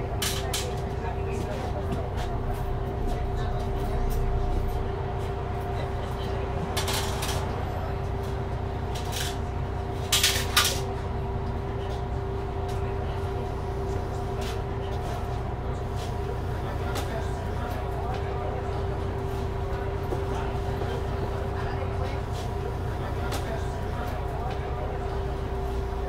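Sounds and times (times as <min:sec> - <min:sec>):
bus engine rumbling: 0:00.0 - 0:26.0.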